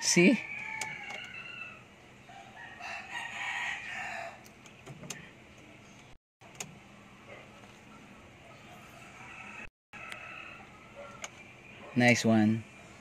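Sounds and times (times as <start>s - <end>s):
rooster crowing: 0.3s - 4.4s, 8.9s - 11.2s.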